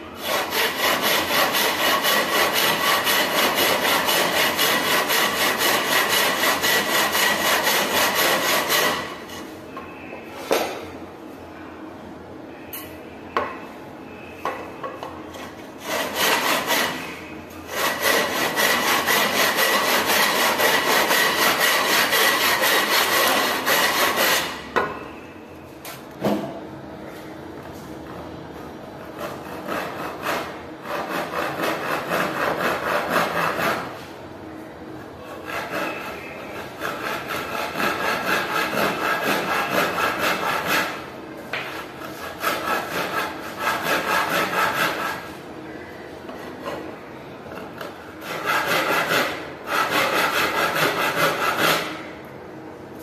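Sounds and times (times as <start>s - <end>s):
hand saw cutting wood: 0.2s - 9.4s, 15.4s - 24.6s, 29.0s - 34.0s, 35.2s - 41.1s, 41.8s - 45.4s, 47.6s - 52.0s.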